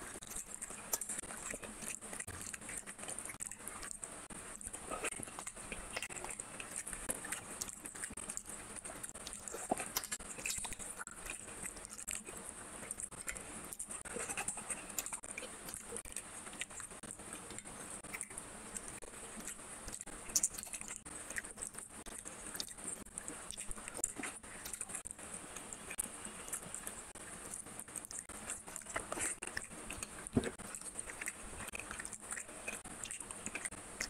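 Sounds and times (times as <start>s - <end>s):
wet chewing and mouth clicks: 0.0s - 34.0s.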